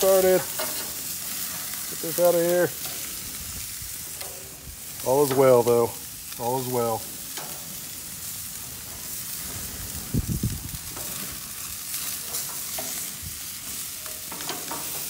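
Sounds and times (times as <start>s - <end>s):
meat sizzling on a grill: 0.0s - 15.0s
metal tongs clicking on grate: 0.5s - 1.0s, 7.3s - 7.7s, 12.3s - 13.1s, 14.0s - 15.0s.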